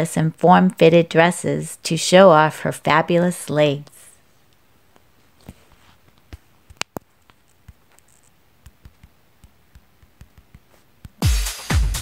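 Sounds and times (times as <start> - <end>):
faint irregular clicks and ticks: 4.4 - 11.2.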